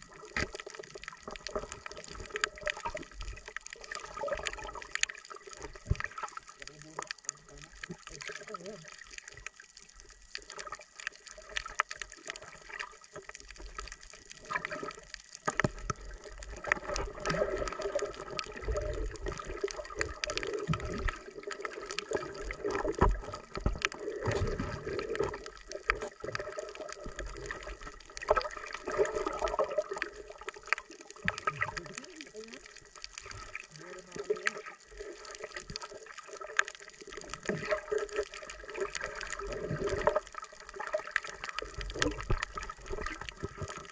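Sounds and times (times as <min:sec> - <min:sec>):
underwater gurgling and bubbling: 0:00.0 - 0:43.9
small clicks and knocks: 0:15.0 - 0:17.1.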